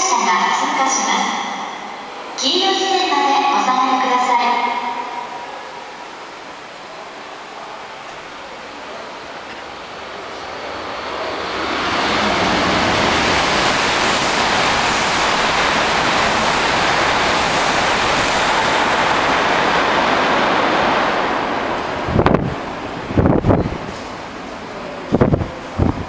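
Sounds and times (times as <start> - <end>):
train passing with rushing roar: 0.0 - 26.0
thin high whine: 10.2 - 14.4
wind buffeting microphone: 10.5 - 24.0, 25.1 - 26.0.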